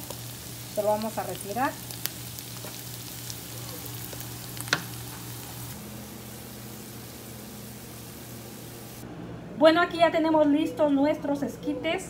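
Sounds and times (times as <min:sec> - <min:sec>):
corn sizzling in skillet: 0:00.0 - 0:09.0.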